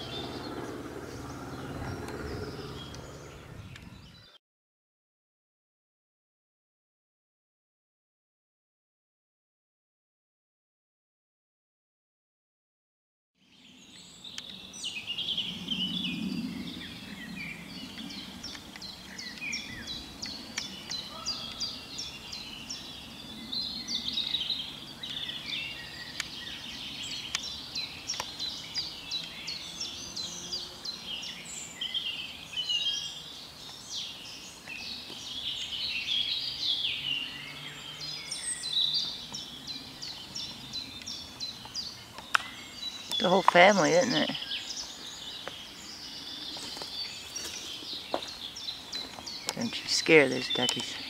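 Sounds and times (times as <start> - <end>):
low hum: 0.0 - 3.9
faint outdoor background: 0.0 - 4.4, 13.4 - 51.0
songbirds chirping and trilling: 0.0 - 4.4, 13.4 - 51.0.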